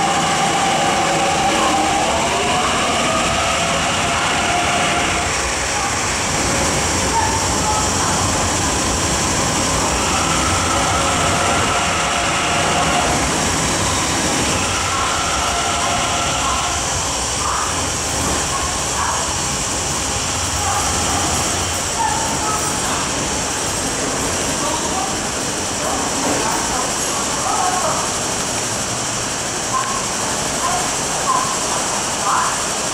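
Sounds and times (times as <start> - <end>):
train passing at speed: 0.0 - 32.9
whining tone: 7.1 - 17.9.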